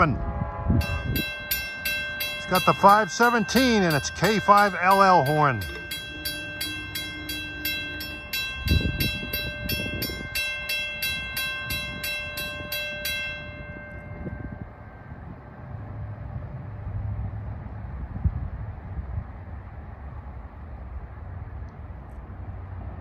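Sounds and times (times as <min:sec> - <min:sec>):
crossing warning bell ringing: 0:00.0 - 0:16.4
approaching train rumble: 0:00.0 - 0:23.0.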